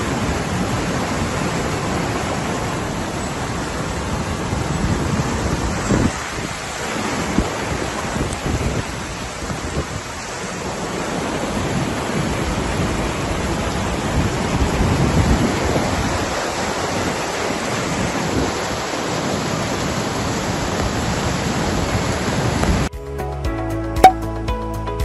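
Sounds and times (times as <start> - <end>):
floodwater rushing down a street: 0.0 - 22.9
heavy downpour: 0.0 - 22.9.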